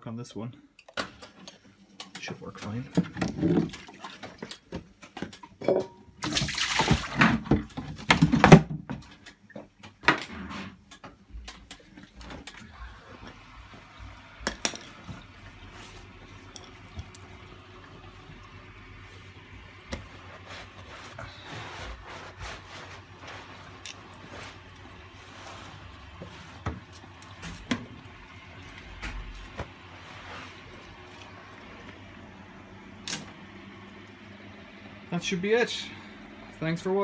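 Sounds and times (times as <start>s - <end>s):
washing machine hum: 0.9s - 37.0s
washing machine rushes and knocks: 6.2s - 9.1s, 19.6s - 30.6s.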